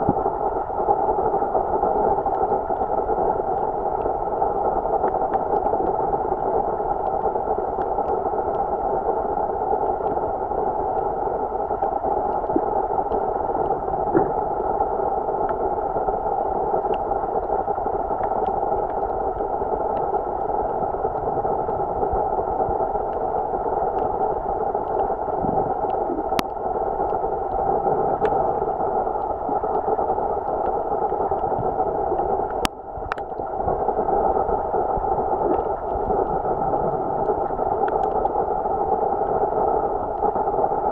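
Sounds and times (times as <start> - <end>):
muffled underwater hiss: 0.0 - 40.9
faint clicks: 24.8 - 27.6, 30.4 - 33.4, 37.2 - 38.4.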